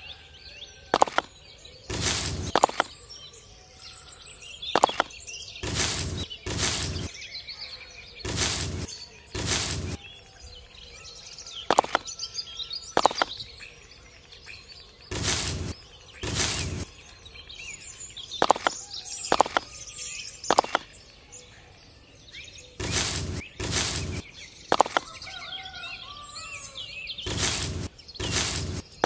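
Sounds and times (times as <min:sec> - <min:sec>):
plastic toys scraping in sand: 0:01.0 - 0:01.3, 0:01.9 - 0:02.9, 0:04.8 - 0:07.1, 0:08.2 - 0:10.0, 0:11.7 - 0:12.0, 0:13.0 - 0:13.4, 0:15.1 - 0:16.9, 0:18.4 - 0:19.7, 0:20.5 - 0:20.8, 0:22.8 - 0:25.1, 0:27.3 - 0:29.0
short sharp clicks: 0:01.0 - 0:01.3, 0:01.9 - 0:03.0, 0:04.8 - 0:07.1, 0:08.3 - 0:10.0, 0:11.7 - 0:12.1, 0:13.0 - 0:13.4, 0:15.1 - 0:16.9, 0:18.4 - 0:19.7, 0:20.5 - 0:20.9, 0:22.8 - 0:25.1, 0:27.3 - 0:29.0.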